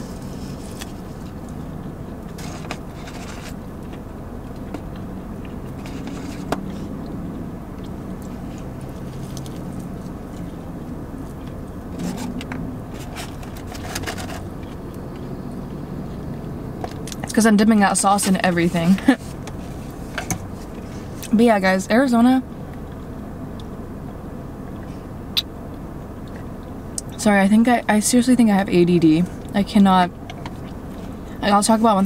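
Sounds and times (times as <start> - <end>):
chewing fried food: 0.0 - 17.3
low car cabin hum: 0.0 - 32.0.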